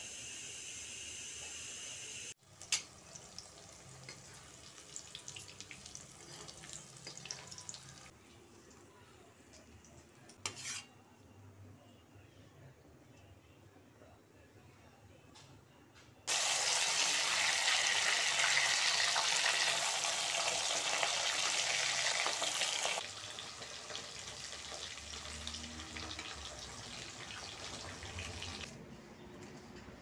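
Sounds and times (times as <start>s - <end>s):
vegetables sizzling in hot oil: 16.3s - 28.7s.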